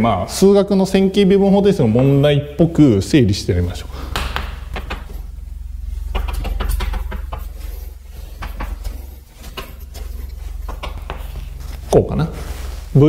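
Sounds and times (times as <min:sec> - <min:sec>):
steady low hum: 0:00.0 - 0:13.0
pen scratching on paper: 0:06.8 - 0:11.6.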